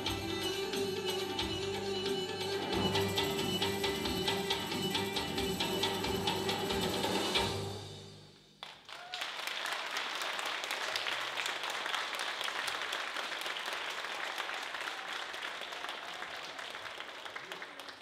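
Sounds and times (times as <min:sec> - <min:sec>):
dance music: 0:00.0 - 0:08.0
audience applause: 0:08.6 - 0:18.0.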